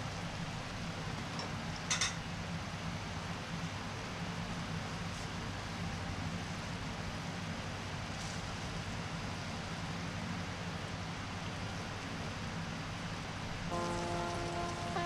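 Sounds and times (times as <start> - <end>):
low hum: 13.7 - 15.0.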